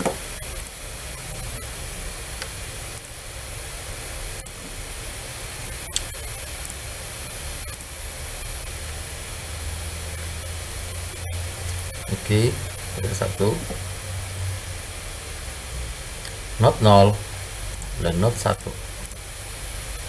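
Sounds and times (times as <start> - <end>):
recording hiss: 0.0 - 20.0
computer mouse clicks: 2.4 - 3.2.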